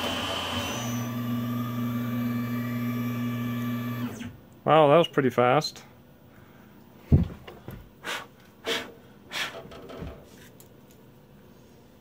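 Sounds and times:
short forceful breath puffs: 8.0s - 9.7s.

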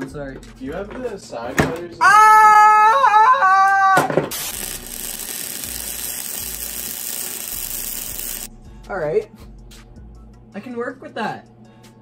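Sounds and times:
welder arc crackling: 4.3s - 8.5s.

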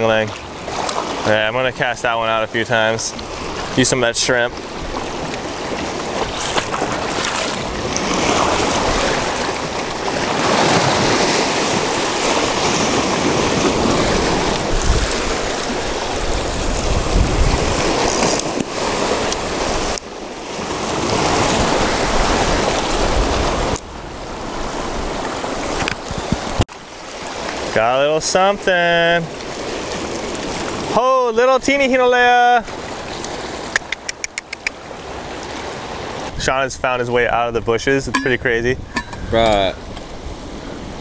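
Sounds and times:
small waves washing over rocks: 0.0s - 1.5s, 3.0s - 27.8s, 28.9s - 31.0s
wind rumbling on microphone: 2.9s - 26.6s, 33.0s - 41.0s.

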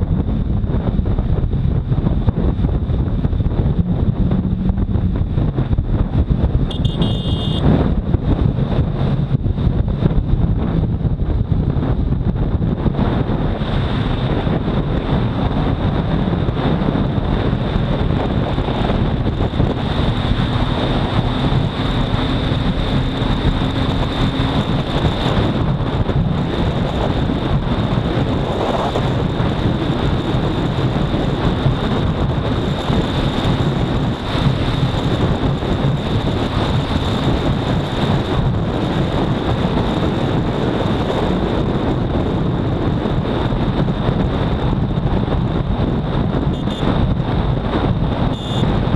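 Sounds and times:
motorcycle engine running: 0.0s - 48.9s
wind rushing on microphone: 0.0s - 48.9s
high-pitched whine: 3.0s - 5.9s, 46.5s - 47.0s.

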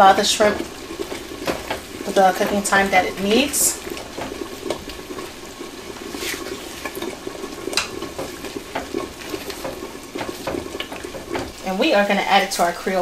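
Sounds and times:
spatula scraping and tapping pan: 0.1s - 12.7s
wet stirring of thick sauce: 0.1s - 12.7s.

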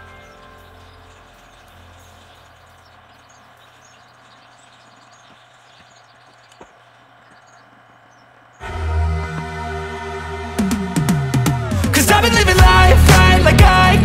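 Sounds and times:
electronic pop song: 8.6s - 14.0s.

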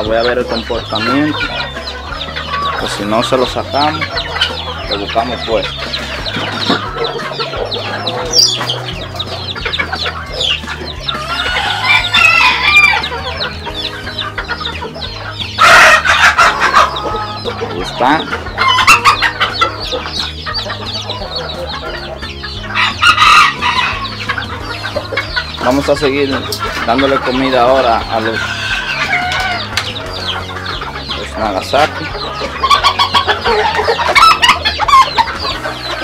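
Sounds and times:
chicks peeping: 0.0s - 36.0s
hens clucking: 0.0s - 36.0s
rooster crowing: 11.1s - 13.1s, 22.8s - 24.1s.

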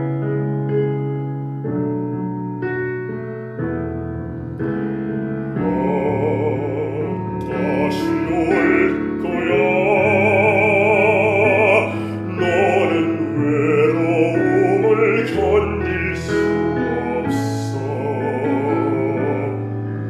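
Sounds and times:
low held accompaniment chords: 0.0s - 20.0s
man singing operatically: 5.6s - 19.8s.

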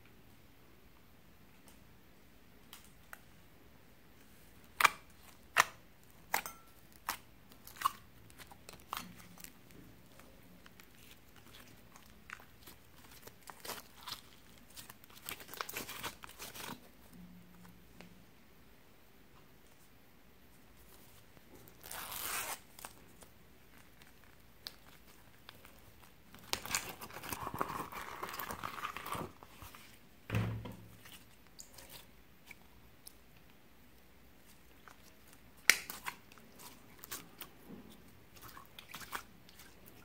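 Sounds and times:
vinyl pouch rustling: 20.9s - 23.0s
slime clicking and crackling: 34.7s - 37.5s.

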